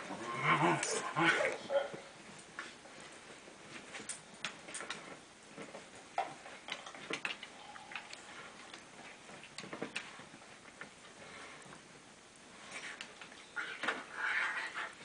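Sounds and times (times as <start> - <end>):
dog gnawing and chewing: 4.0 - 10.1.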